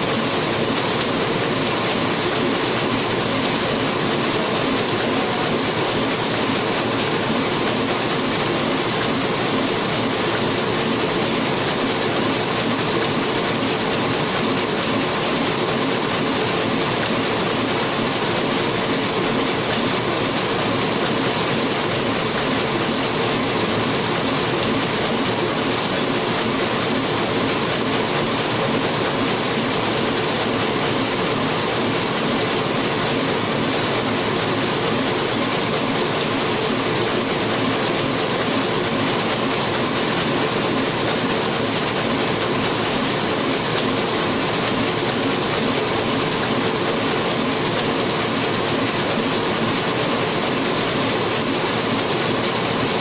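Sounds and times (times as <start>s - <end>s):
printing press clattering: 0.0s - 53.0s.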